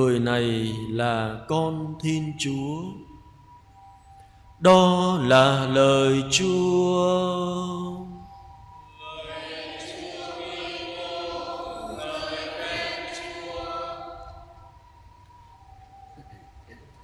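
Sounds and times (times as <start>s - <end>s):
choir and congregation singing: 4.7s - 15.4s.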